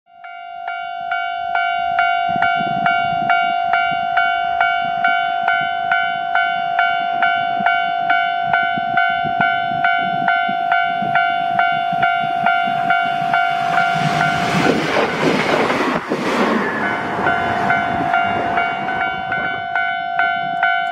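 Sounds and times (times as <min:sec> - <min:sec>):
level crossing bell ringing: 0:00.2 - 0:14.4, 0:16.8 - 0:20.9
train rushing past: 0:08.5 - 0:20.7.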